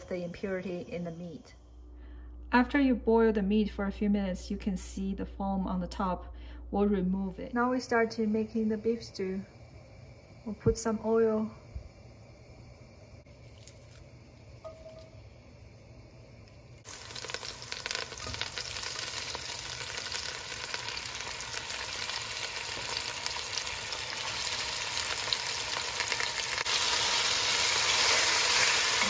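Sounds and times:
meat sizzling in hot oil: 16.5s - 29.0s.

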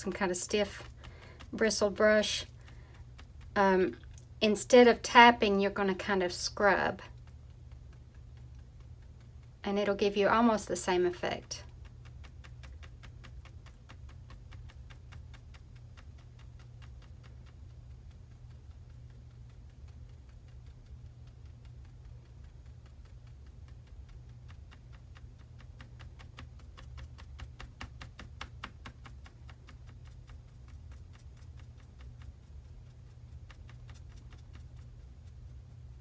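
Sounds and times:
brush tapping paint on canvas: 0.0s - 36.0s
low steady hum: 0.0s - 36.0s.

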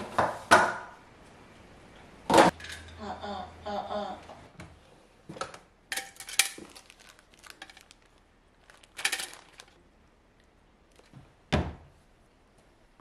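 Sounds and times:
plastic items clicking: 5.9s - 9.8s
plastic crinkling: 6.0s - 9.8s.

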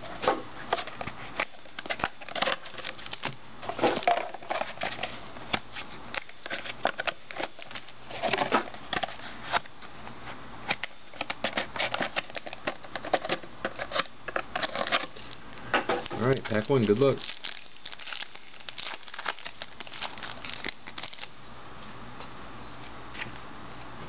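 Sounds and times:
plastic wrappers crinkling: 0.8s - 5.2s, 6.1s - 9.6s, 10.8s - 21.4s.

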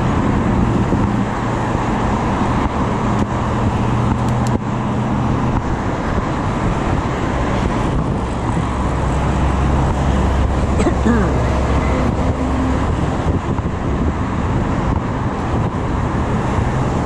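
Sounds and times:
cars passing: 0.0s - 17.0s
low engine drone: 0.0s - 17.0s.

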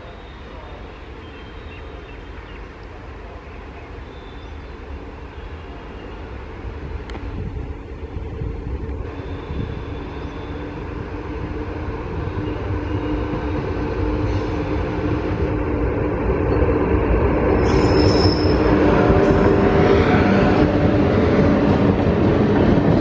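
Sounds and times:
train rumbling on rails: 0.0s - 23.0s
train wheels whining: 17.3s - 23.0s.

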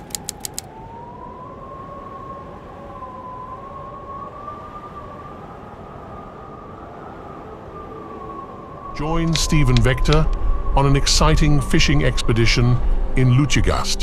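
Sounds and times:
typewriter-like click: 0.0s - 0.7s
whistling drone tone: 0.0s - 13.4s.

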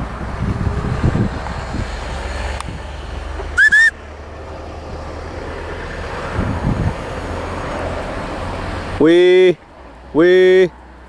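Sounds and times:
wind rumble on microphone: 0.0s - 3.5s, 6.1s - 7.6s
rising whistle notes: 3.6s - 4.0s.

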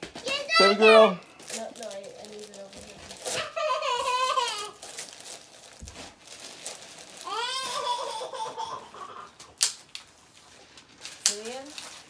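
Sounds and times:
gift box and paper handling: 0.0s - 8.3s, 10.0s - 12.0s
child squealing with laughter: 3.3s - 4.8s, 7.2s - 9.3s.

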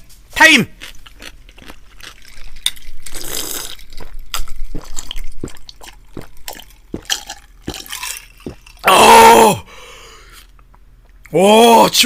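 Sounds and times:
person gulping a drink: 1.1s - 8.9s.

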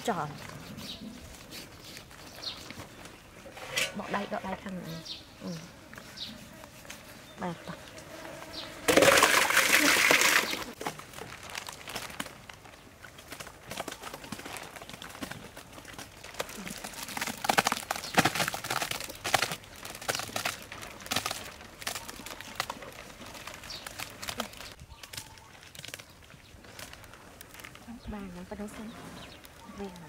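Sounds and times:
wet squishes and scrapes: 0.0s - 27.9s
plastic sheeting crinkling: 8.9s - 30.0s.

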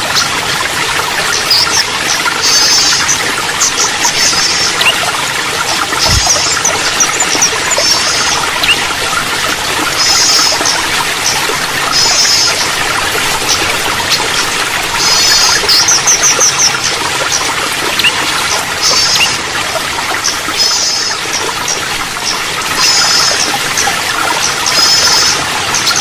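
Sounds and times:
water trickling: 0.0s - 26.0s.

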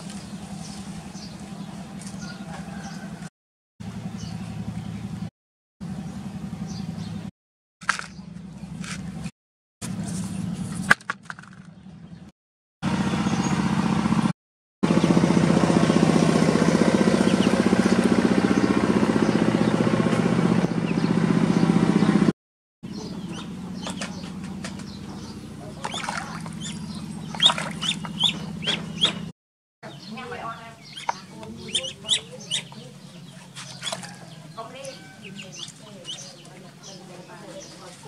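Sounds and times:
ducklings peeping: 17.2s - 19.8s, 22.9s - 38.0s.

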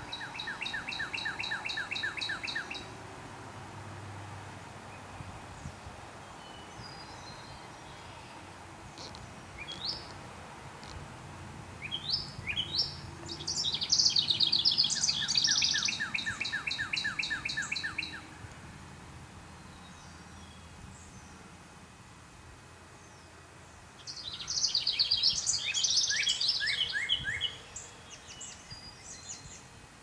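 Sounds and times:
songbird trilling: 0.0s - 2.9s, 9.0s - 10.2s, 11.8s - 18.2s, 24.0s - 29.4s
faint outdoor background noise: 0.0s - 30.0s.

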